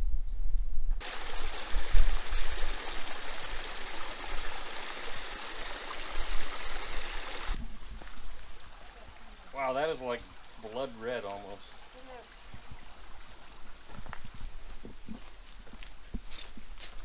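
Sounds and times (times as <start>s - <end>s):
stream over rocky cascade: 1.0s - 14.2s.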